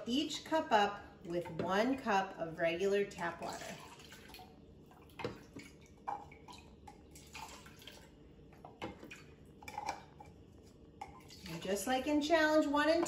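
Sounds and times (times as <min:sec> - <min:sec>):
water splashing and trickling: 0:03.4 - 0:08.1.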